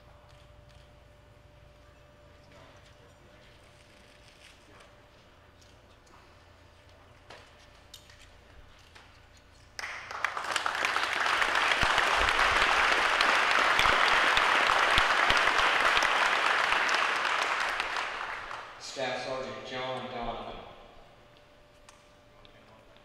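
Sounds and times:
crowd applauding: 0:09.8 - 0:18.8.

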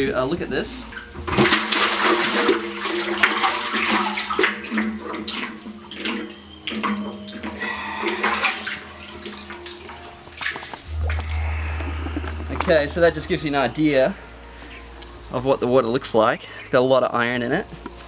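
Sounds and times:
bucket splashing in well water: 0:01.3 - 0:12.4.

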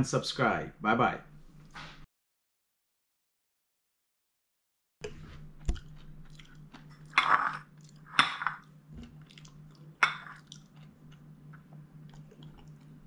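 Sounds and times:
person chewing: 0:05.0 - 0:13.0
steady low hum: 0:05.0 - 0:13.0.

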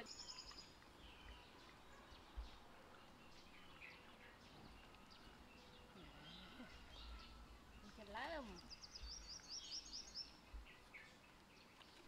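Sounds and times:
distant bird chirps: 0:00.0 - 0:11.9.

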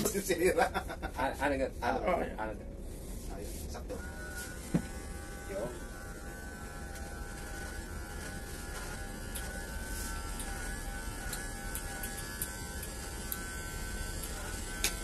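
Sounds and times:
low steady hum: 0:00.0 - 0:15.0
electric hair clippers buzzing: 0:03.9 - 0:15.0.

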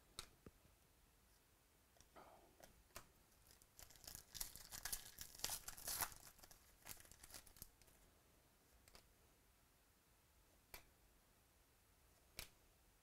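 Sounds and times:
wrapper tearing and crinkling: 0:03.4 - 0:07.8.

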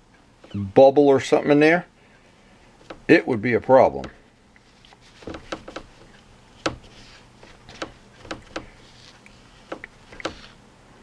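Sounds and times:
paper towel rubbing: 0:04.7 - 0:10.6.

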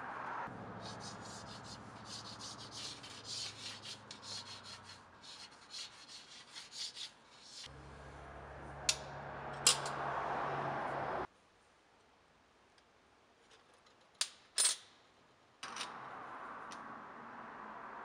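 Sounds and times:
marker scratching on steel: 0:00.8 - 0:07.7.

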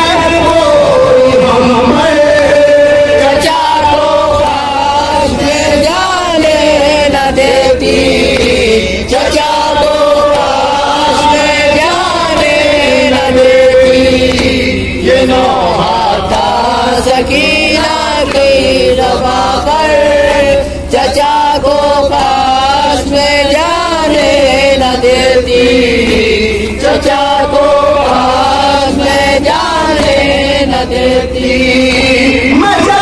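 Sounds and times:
men chanting a lament: 0:00.0 - 0:33.0.

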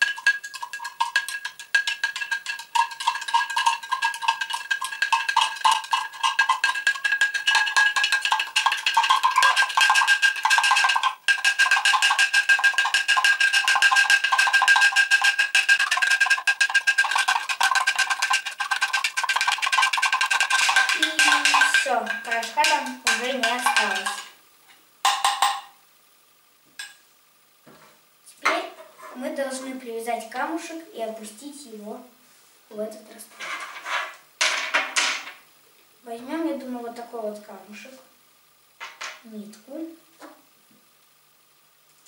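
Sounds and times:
spoon clinking in glass jar: 0:00.0 - 0:24.4, 0:25.1 - 0:25.7.

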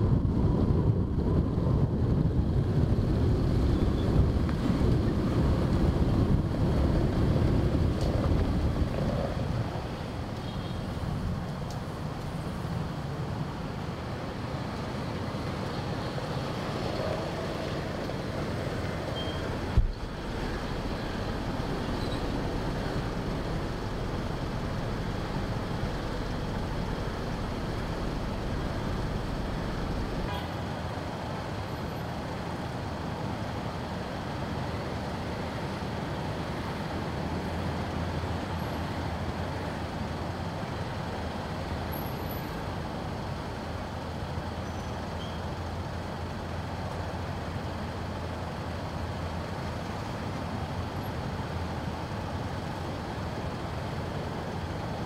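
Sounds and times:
engine and road noise: 0:00.0 - 0:55.0.

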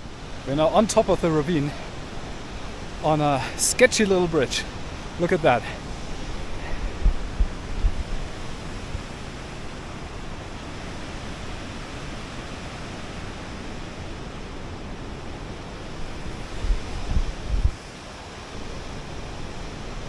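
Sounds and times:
rushing water: 0:00.0 - 0:20.0
wind bumps on microphone: 0:05.9 - 0:09.4, 0:16.0 - 0:17.9.

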